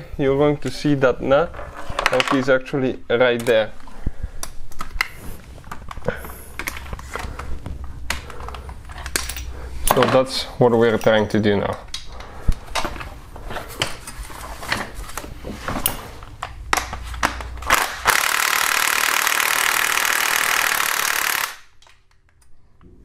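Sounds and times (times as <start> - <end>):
power ratchet running: 17.7 - 21.7.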